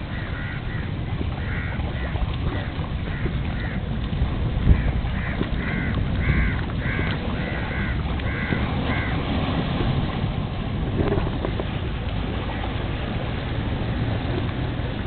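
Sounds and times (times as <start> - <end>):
bird calling: 0.0 - 2.1, 4.8 - 9.2
wind rumble on microphone: 0.0 - 15.0.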